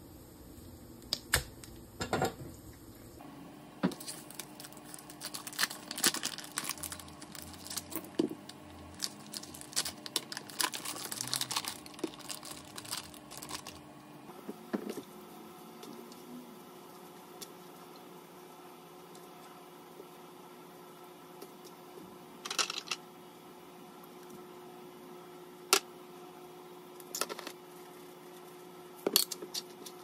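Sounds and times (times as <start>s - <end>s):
plastic film crinkling and tearing: 3.9s - 13.8s.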